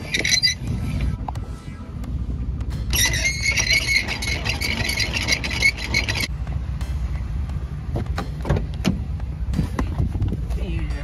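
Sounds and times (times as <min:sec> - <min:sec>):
jack gears rattling squeak: 0:00.0 - 0:01.1, 0:02.8 - 0:06.3
low rumble: 0:00.0 - 0:11.0.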